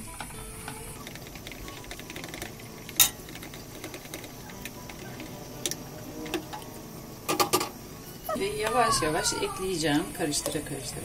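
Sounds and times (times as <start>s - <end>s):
whisk and ladle clicking on metal: 0.6s - 7.8s.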